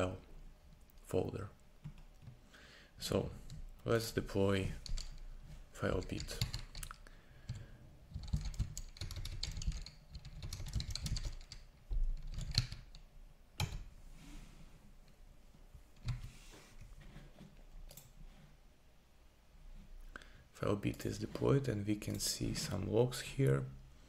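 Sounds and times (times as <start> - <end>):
typing on computer keyboard: 4.8 - 5.2, 5.9 - 13.0.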